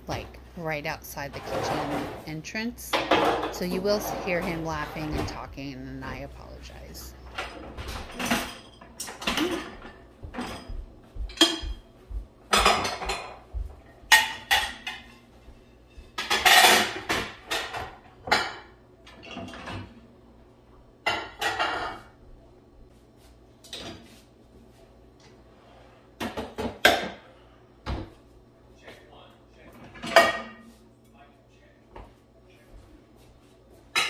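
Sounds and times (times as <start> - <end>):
dishes clattering: 2.9 - 5.5, 7.3 - 11.8, 12.5 - 20.0, 21.0 - 22.2, 29.8 - 30.7.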